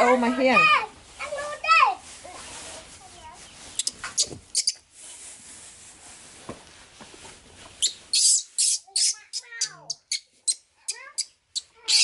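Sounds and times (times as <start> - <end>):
baby monkey squeaking: 3.7 - 4.8, 7.8 - 12.0.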